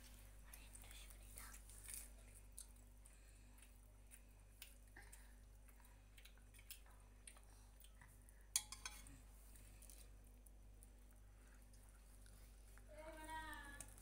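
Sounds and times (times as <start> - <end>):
steel ladle clinking on plate: 8.6 - 9.1.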